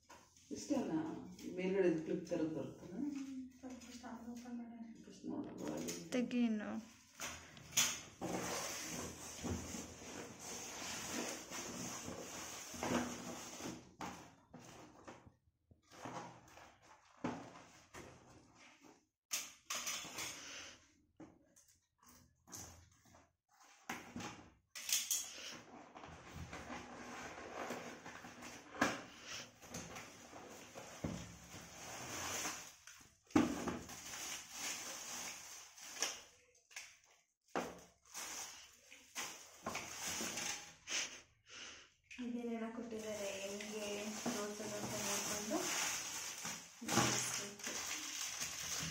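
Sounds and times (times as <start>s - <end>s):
cardboard and plastic rustling: 6.9s - 15.2s, 15.8s - 19.0s, 25.4s - 40.9s, 42.8s - 48.9s
plastic bags crinkling: 33.8s - 36.3s, 38.0s - 40.7s, 42.8s - 48.9s.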